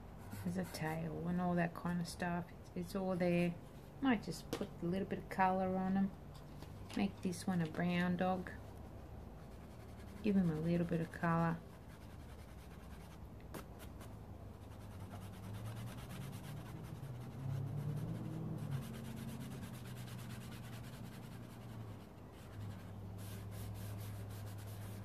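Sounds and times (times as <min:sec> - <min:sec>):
oil pastel scraping on paper: 0:09.4 - 0:25.0.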